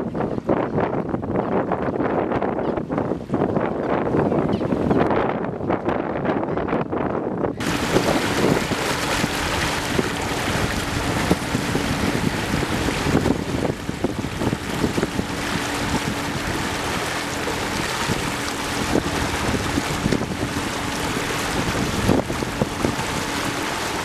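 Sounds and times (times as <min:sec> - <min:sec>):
boat engine hum: 0:00.0 - 0:24.0
wind on microphone: 0:00.0 - 0:24.0
rushing water: 0:07.6 - 0:24.0.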